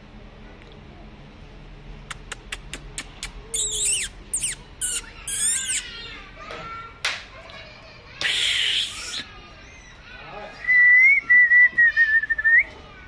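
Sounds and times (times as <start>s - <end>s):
puppy whining: 2.4s - 6.1s.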